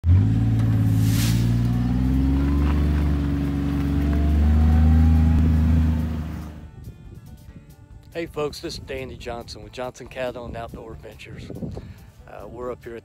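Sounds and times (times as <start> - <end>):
vehicle engine running: 0.0 - 6.7.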